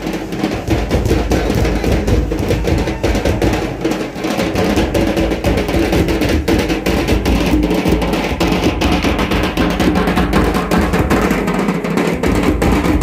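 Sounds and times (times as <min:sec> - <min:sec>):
folk dance music: 0:00.0 - 0:06.6
fast steady drumming: 0:00.0 - 0:13.0.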